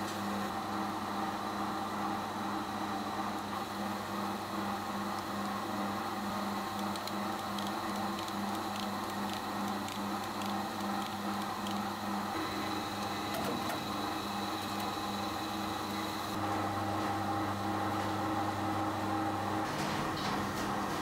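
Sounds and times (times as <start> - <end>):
deeper machine hum: 0.0 - 21.0
machinery pulsing hum: 0.0 - 21.0
faint high whine: 5.5 - 16.5.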